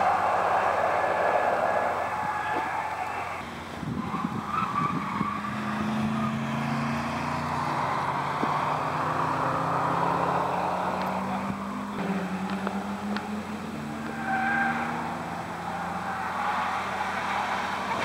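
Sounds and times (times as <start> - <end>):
car engine on circuit: 0.0 - 18.0.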